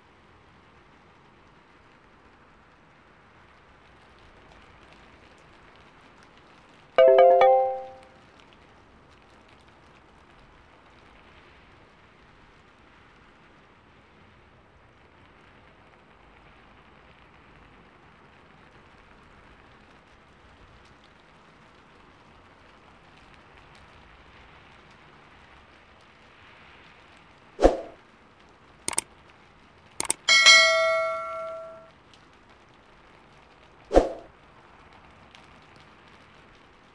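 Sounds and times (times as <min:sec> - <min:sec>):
mouse clicks: 0:30.0 - 0:30.3.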